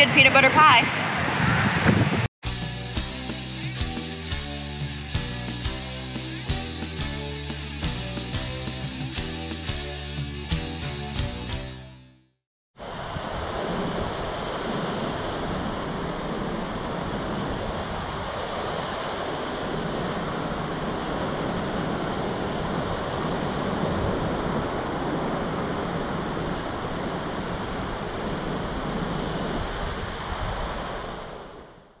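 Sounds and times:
waves breaking on beach: 12.8 - 31.8.

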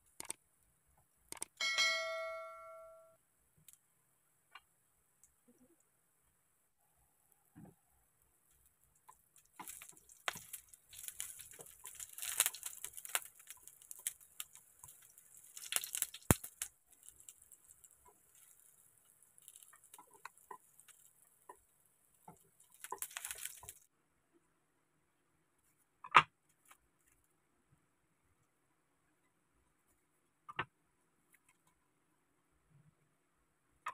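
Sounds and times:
slices sizzling in hot oil: 9.1 - 23.9.

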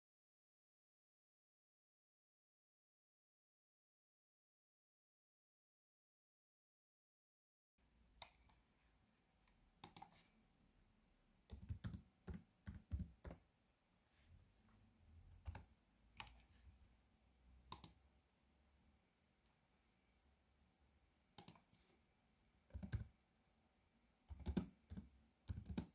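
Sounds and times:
laptop keyboard typing: 11.5 - 13.4, 15.4 - 15.7, 22.7 - 23.1, 24.3 - 25.9.

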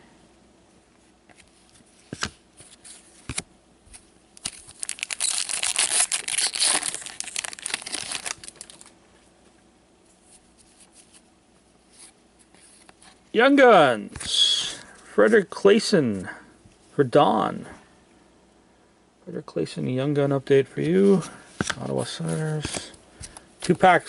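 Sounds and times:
foil wrapper tearing and crinkling: 4.4 - 8.9.

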